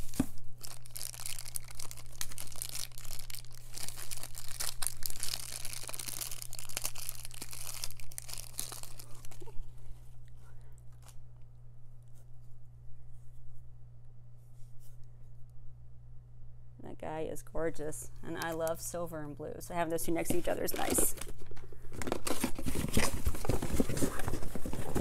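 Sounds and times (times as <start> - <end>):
plastic bag crinkling and tearing: 0.0 - 9.7.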